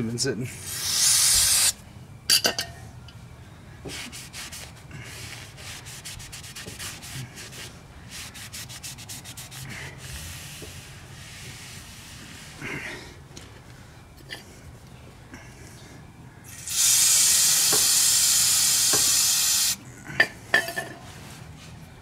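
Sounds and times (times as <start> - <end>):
cloth rubbing brake rotor: 3.9 - 12.7.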